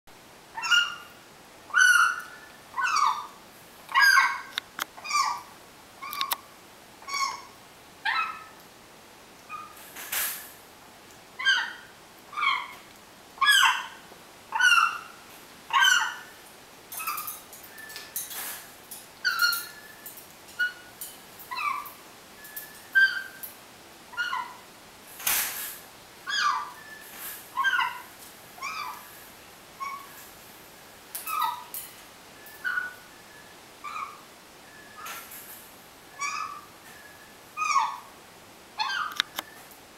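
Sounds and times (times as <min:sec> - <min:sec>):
parrot squeaky calls: 0:00.6 - 0:01.1, 0:01.7 - 0:06.4, 0:07.0 - 0:08.6, 0:09.5 - 0:09.8, 0:11.4 - 0:12.8, 0:13.4 - 0:16.3, 0:17.0 - 0:18.0, 0:19.2 - 0:20.0, 0:20.6 - 0:23.4, 0:24.1 - 0:24.6, 0:26.3 - 0:29.1, 0:29.8 - 0:30.2, 0:31.2 - 0:31.8, 0:32.5 - 0:33.0, 0:33.8 - 0:35.2, 0:36.1 - 0:38.1, 0:38.8 - 0:39.4.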